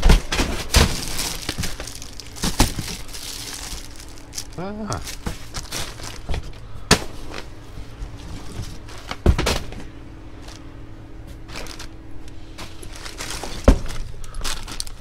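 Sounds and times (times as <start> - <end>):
faint steady hum: 0.0 - 15.0
rustling in cardboard box: 0.6 - 6.6, 11.4 - 15.0.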